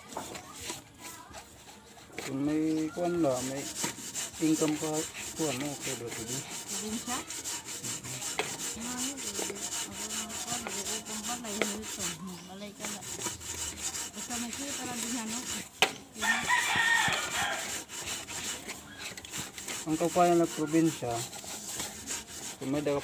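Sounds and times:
hand scrubbing metal pot: 0:00.0 - 0:23.0
rooster crowing: 0:16.2 - 0:17.9.

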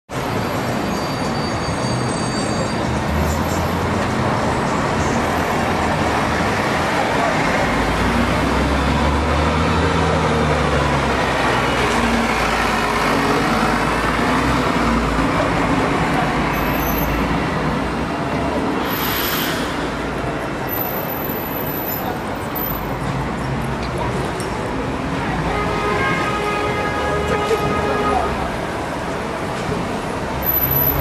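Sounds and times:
road traffic noise: 0:00.1 - 0:31.0
large vehicle engine humming: 0:02.8 - 0:25.7.

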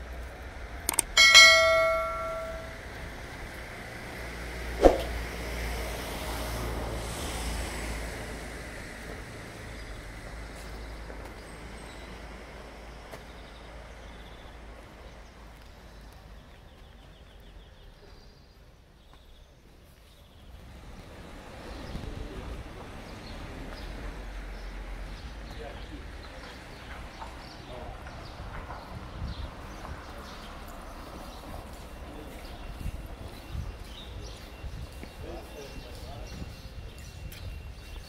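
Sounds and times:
church bell ringing: 0:01.0 - 0:03.0.

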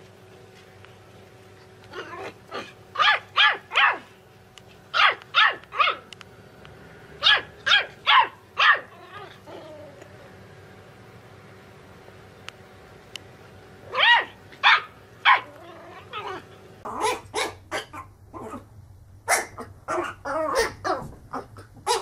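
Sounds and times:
puppy yapping: 0:01.9 - 0:04.1, 0:05.0 - 0:06.1, 0:07.2 - 0:10.0, 0:13.9 - 0:18.6, 0:19.3 - 0:22.0.

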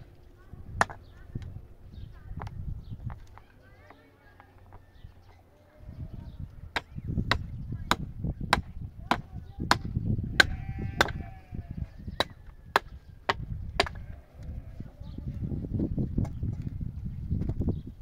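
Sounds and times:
hand tool chopping: 0:06.8 - 0:11.2, 0:12.2 - 0:14.0.

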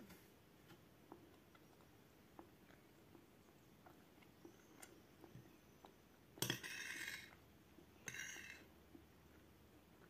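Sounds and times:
cutlery scraping on a plate: 0:06.4 - 0:07.4, 0:08.0 - 0:08.7.

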